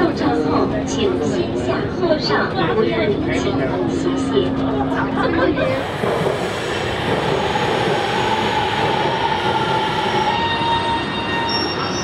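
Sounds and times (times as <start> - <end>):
train rumble: 2.4 - 12.0
train brake squeal: 7.2 - 12.0
thin high squeals: 9.1 - 12.0.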